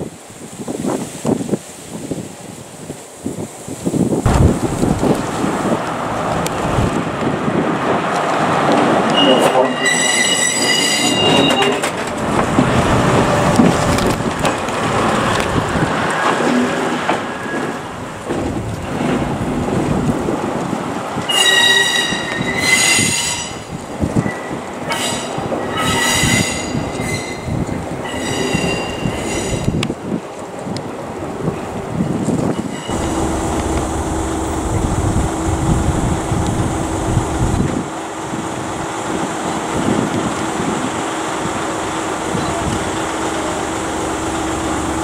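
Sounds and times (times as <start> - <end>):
train rumbling on rails: 0.0 - 45.0
train wheels squealing: 9.1 - 11.9, 21.3 - 29.8, 32.6 - 33.0.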